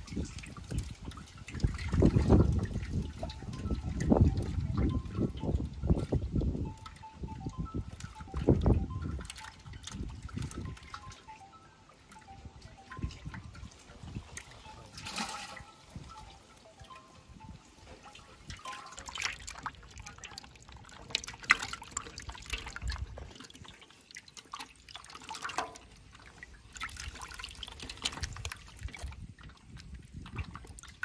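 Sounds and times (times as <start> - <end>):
wet splashes of stirred fish: 0.0 - 4.8, 18.0 - 31.0
water sloshing in a metal basin: 0.0 - 31.0.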